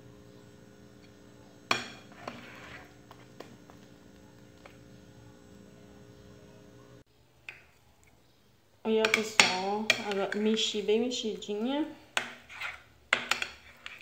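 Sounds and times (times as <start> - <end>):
spoon stirring batter in glass bowl: 1.0 - 5.0, 9.0 - 14.0.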